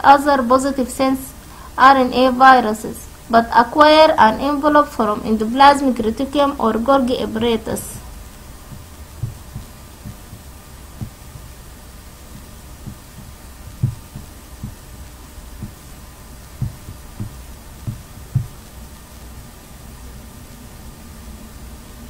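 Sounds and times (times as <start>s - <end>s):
steady low hum: 0.0s - 22.0s
soft low thumps: 8.2s - 18.8s.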